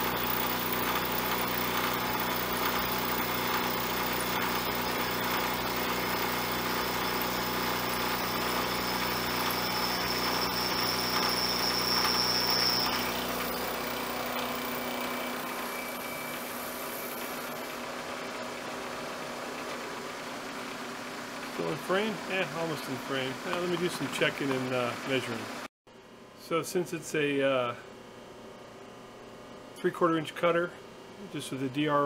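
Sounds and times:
end mill cutting metal: 0:00.0 - 0:18.9
milling machine motor hum: 0:00.0 - 0:25.6
high whine: 0:07.8 - 0:17.9.

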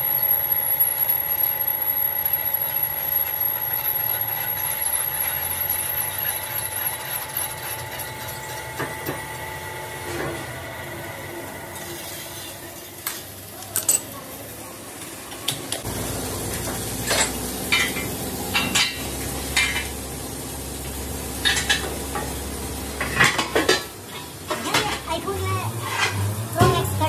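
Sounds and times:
electric motor humming: 0:00.0 - 0:11.6.

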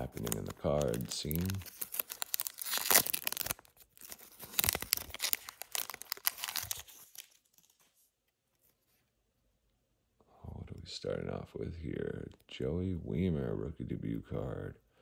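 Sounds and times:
foil wrapper crinkling: 0:00.0 - 0:07.9
wrapper ripping: 0:00.0 - 0:07.9.

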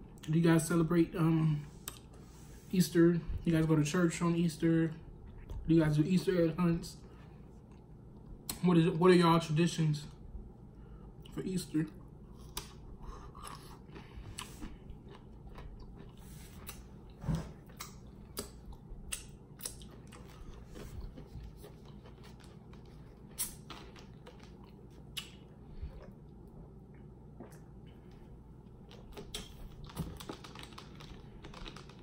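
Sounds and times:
chewing and crunching cucumber: 0:12.3 - 0:26.2, 0:28.7 - 0:32.0.

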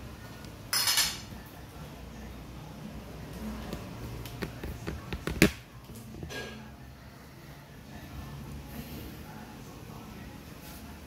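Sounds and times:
tableware clicks and taps: 0:00.7 - 0:01.3.

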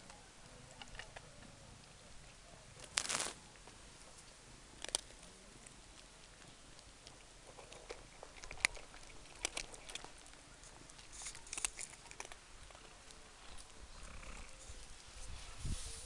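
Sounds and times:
cats crunching dry kibble: 0:00.1 - 0:15.2.

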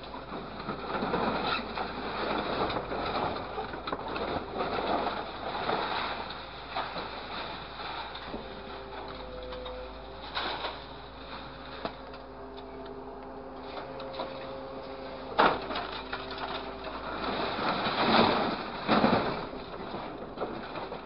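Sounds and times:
hydraulic grapple whine: 0:00.0 - 0:21.0
scrap metal clattering into container: 0:15.2 - 0:21.0.

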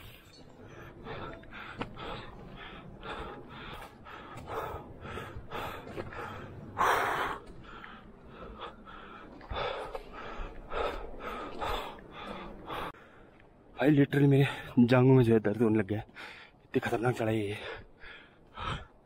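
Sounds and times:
man breathing hard: 0:00.6 - 0:13.4, 0:17.6 - 0:19.0.

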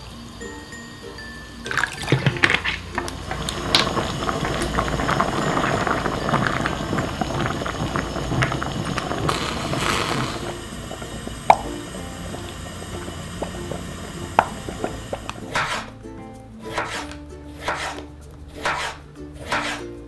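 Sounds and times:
porridge bubbling in pot: 0:01.7 - 0:16.0
spatula scraping pot: 0:14.4 - 0:15.9, 0:16.6 - 0:19.9.

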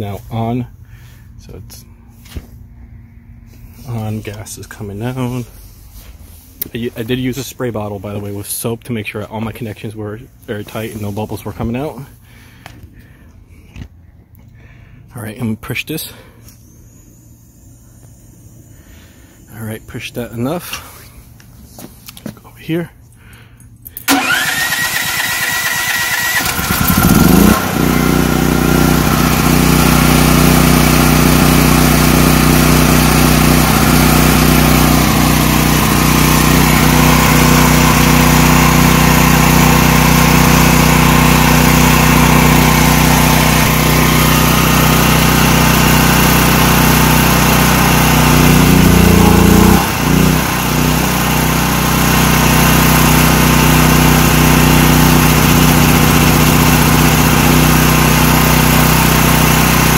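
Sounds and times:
generator engine running: 0:00.0 - 0:15.1, 0:15.9 - 0:22.3, 0:23.1 - 0:59.9
electric starter cranking: 0:23.9 - 0:59.9.

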